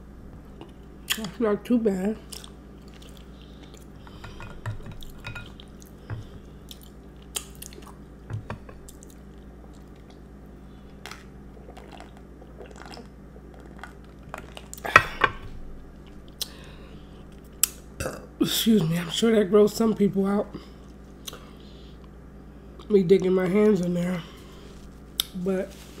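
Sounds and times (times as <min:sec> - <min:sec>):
wet chewing: 0:02.2 - 0:04.0.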